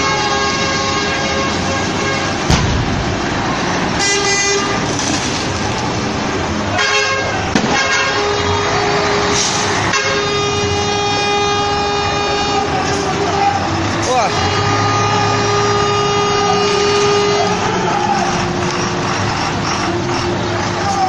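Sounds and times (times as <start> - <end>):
truck horns blaring: 0.0 - 5.1, 6.2 - 21.0
noisy rumble: 1.4 - 21.0
sharp crack: 2.4 - 3.5, 7.5 - 8.0.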